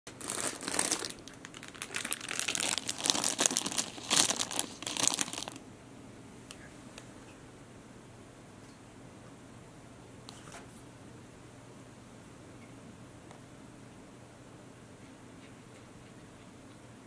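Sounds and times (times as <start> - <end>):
plastic wrapper crinkling: 0.1 - 5.6.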